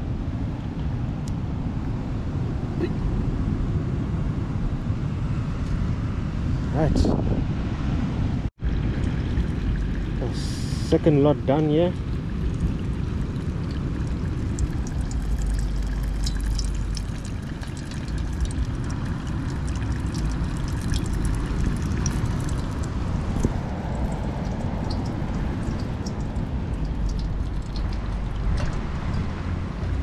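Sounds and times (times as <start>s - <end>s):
low rumble: 1.6s - 30.0s
oil crackling and spitting: 8.7s - 29.3s.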